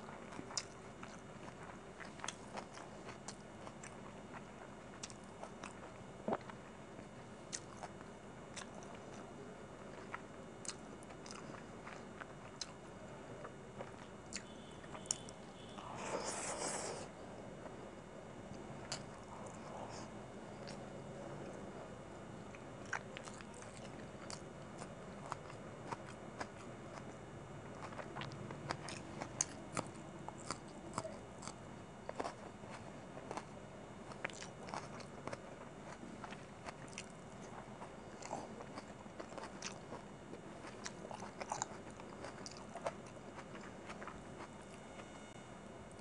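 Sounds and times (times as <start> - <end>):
wet mouth chewing: 27.8 - 33.5, 34.1 - 44.8.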